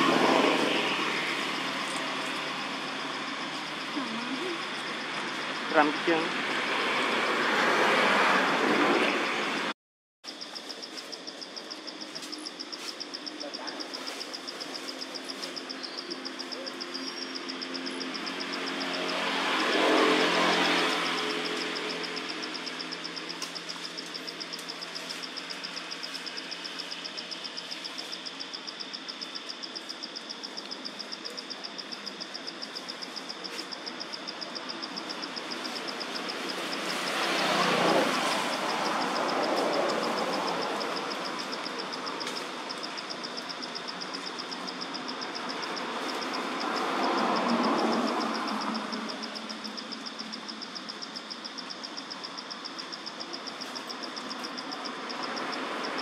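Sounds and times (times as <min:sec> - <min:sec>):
vehicle passing: 0:00.0 - 0:09.7, 0:15.4 - 0:26.6, 0:33.5 - 0:49.7.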